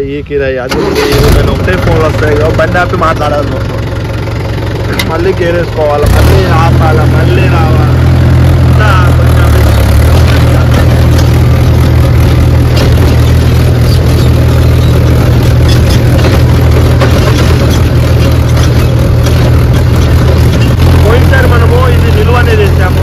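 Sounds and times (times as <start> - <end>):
tractor diesel engine droning: 0.0 - 23.0
clicks and rattles: 10.1 - 20.8.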